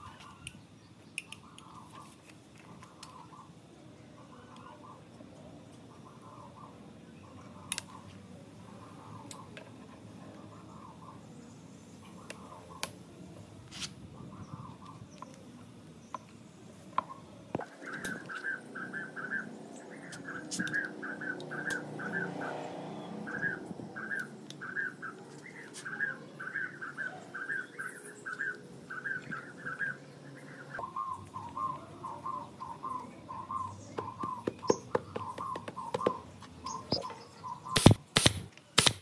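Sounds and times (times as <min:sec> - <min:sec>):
small bird chirping: 0:14.2 - 0:38.0.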